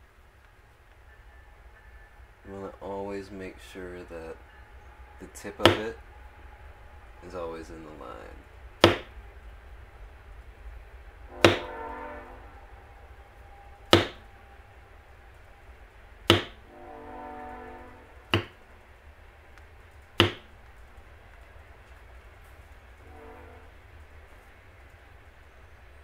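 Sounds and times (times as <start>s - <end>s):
mallet tapping leather tool: 8.8s - 9.1s, 11.4s - 11.7s, 14.0s - 14.2s, 16.3s - 16.6s, 18.4s - 18.6s, 20.2s - 20.4s.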